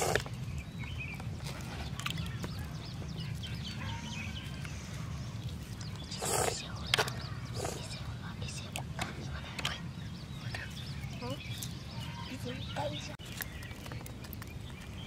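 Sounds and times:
small birds chirping: 0.0s - 15.0s
steady low rumble: 0.0s - 15.0s.

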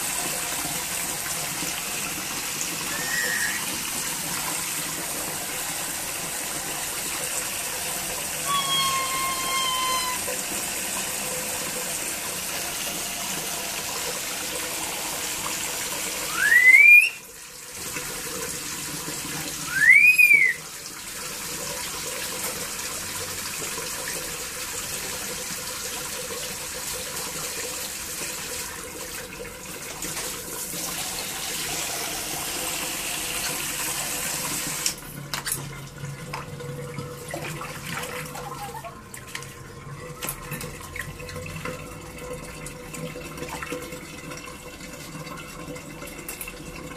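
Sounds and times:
water running: 0.0s - 46.9s
loud rising whistle: 2.9s - 3.6s, 8.4s - 10.3s, 16.3s - 17.2s, 19.7s - 20.6s.

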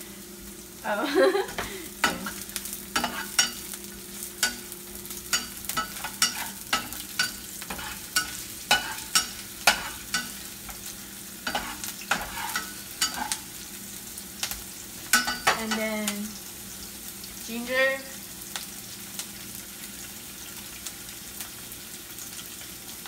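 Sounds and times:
onion sizzling in oil: 0.0s - 23.0s
utensil scraping pan: 3.0s - 3.6s, 5.3s - 10.8s, 11.4s - 13.4s.

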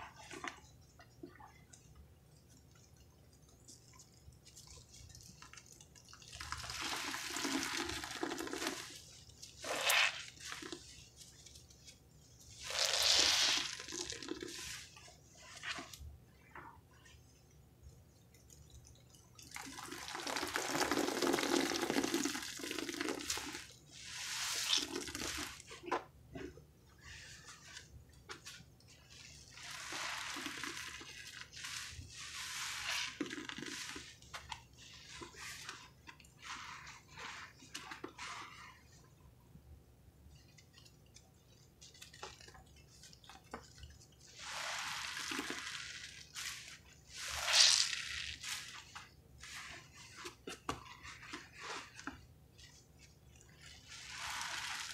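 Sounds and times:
water dripping: 0.0s - 12.8s, 13.7s - 24.0s, 40.3s - 47.4s
wet sponges squelching: 0.0s - 54.9s.

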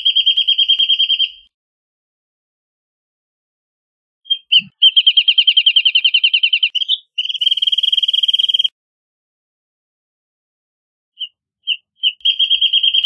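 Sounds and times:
bird singing rapid trill: 0.0s - 1.5s, 4.2s - 8.7s, 11.2s - 13.0s.

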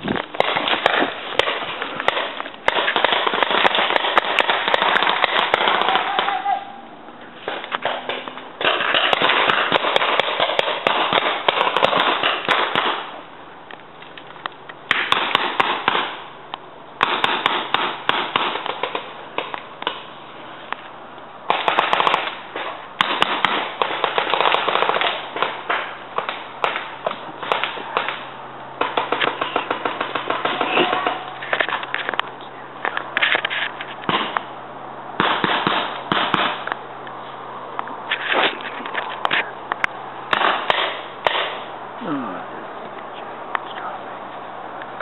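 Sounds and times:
paintball markers firing: 0.1s - 6.4s, 7.5s - 13.1s, 14.9s - 16.2s, 17.0s - 20.1s, 21.5s - 32.1s, 35.2s - 36.8s.

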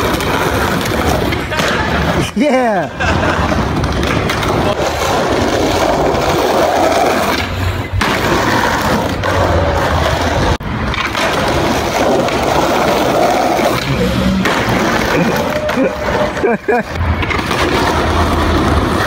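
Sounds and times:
skateboard wheels rolling on concrete: 0.0s - 19.0s.

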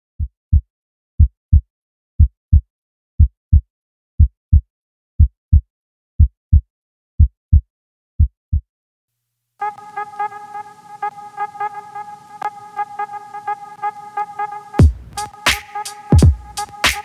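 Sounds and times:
heartbeat thumps: 14.8s - 15.3s, 16.2s - 16.6s.

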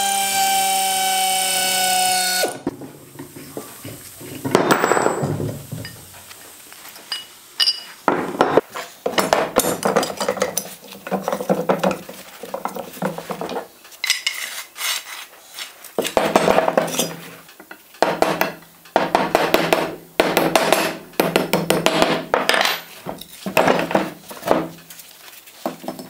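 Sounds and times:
steel jack parts clinking and scraping: 7.1s - 8.0s, 9.2s - 15.0s, 16.0s - 17.8s, 22.5s - 24.3s.

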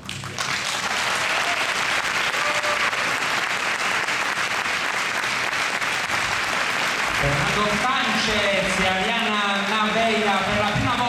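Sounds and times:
audience applause: 0.0s - 11.0s
tango music: 7.1s - 10.5s.

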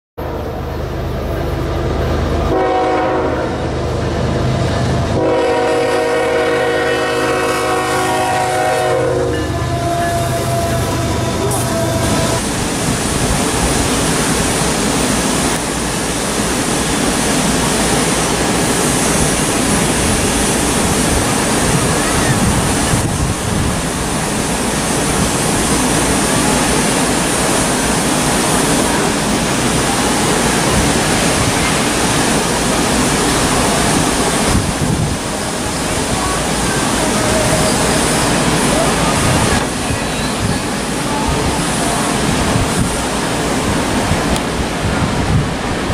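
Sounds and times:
wind blowing on microphone: 18.2s - 45.9s.

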